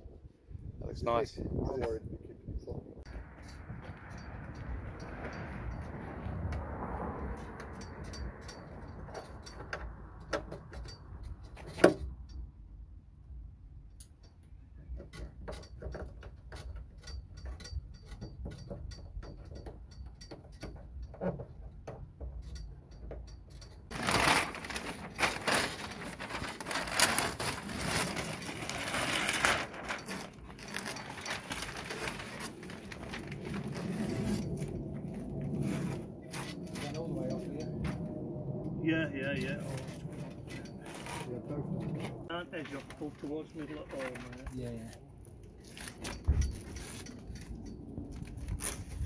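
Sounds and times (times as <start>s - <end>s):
masking paper and tape tearing: 23.9s - 34.7s, 40.8s - 41.4s, 48.2s - 49.0s.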